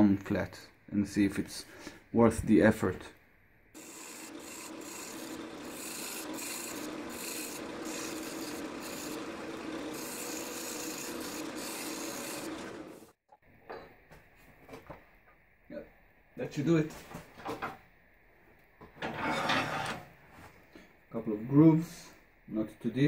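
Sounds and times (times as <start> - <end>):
lathe running hum: 3.8 - 13.2
tool scraping spinning wood: 3.8 - 13.2, 19.0 - 20.1.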